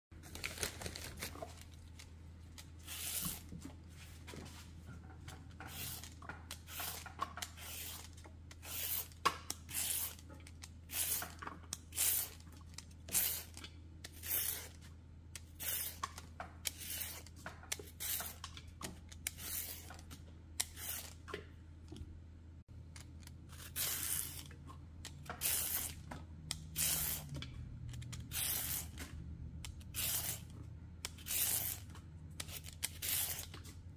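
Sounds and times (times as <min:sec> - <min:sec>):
peeler scraping a carrot: 0:02.8 - 0:03.5, 0:05.6 - 0:12.4, 0:13.0 - 0:14.8, 0:15.4 - 0:21.3, 0:23.5 - 0:29.0, 0:29.6 - 0:33.7.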